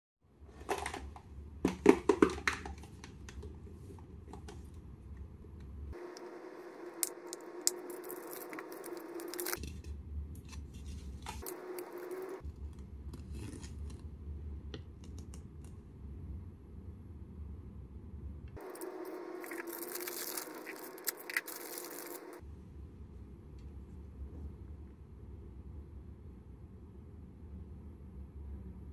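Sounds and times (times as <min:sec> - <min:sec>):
plastic film crinkling and tearing: 0:07.0 - 0:09.8, 0:18.6 - 0:22.4.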